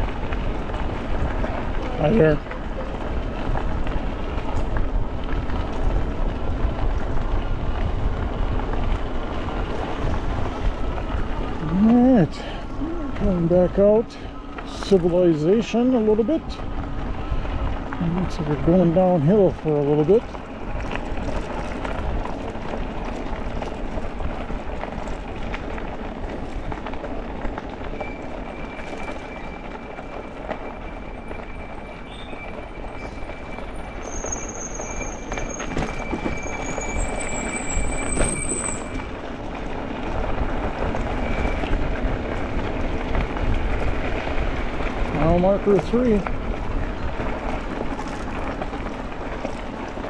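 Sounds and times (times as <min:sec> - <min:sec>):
bike tyre noise: 0:00.0 - 0:50.0
wind buffeting microphone: 0:00.0 - 0:50.0
steady high-pitched squeal: 0:27.8 - 0:39.2
squeal rising in pitch: 0:31.2 - 0:39.0.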